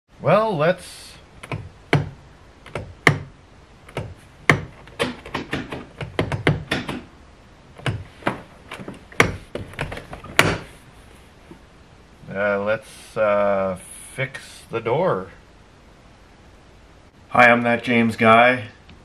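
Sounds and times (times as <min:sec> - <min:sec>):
car door handle clacking: 0:03.9 - 0:07.1.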